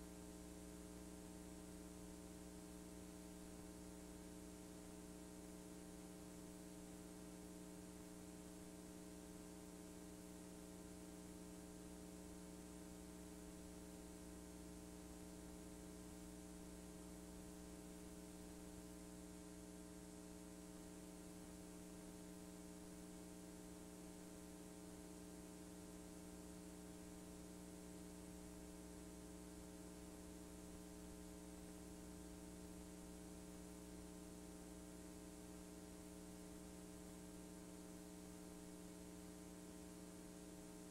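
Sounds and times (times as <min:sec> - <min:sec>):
faint electrical hum: 0:00.0 - 0:40.9.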